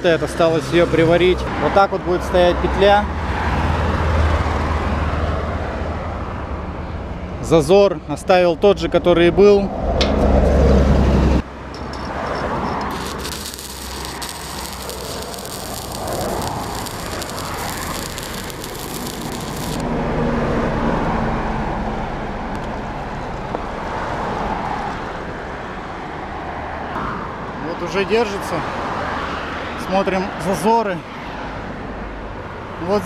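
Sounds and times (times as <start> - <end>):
welding arc crackling: 12.7 - 19.9.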